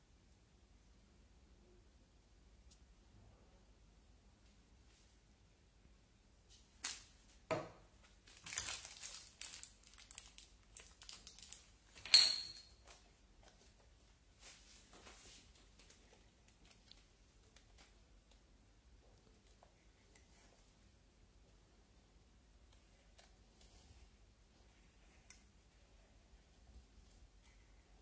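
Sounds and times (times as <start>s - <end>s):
plastic packaging crinkling: 8.0s - 12.0s.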